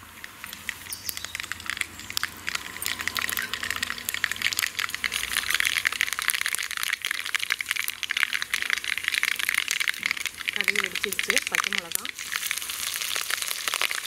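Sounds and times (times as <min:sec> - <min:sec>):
mustard seeds popping in hot oil: 0:00.0 - 0:14.0.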